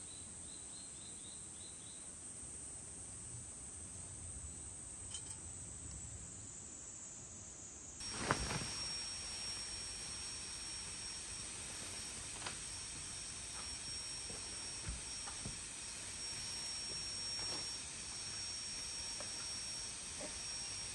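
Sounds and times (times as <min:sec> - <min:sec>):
faint high insect buzz: 0:00.0 - 0:20.9
thin high whine: 0:05.0 - 0:06.0, 0:08.0 - 0:20.9
steady hiss: 0:06.3 - 0:20.9.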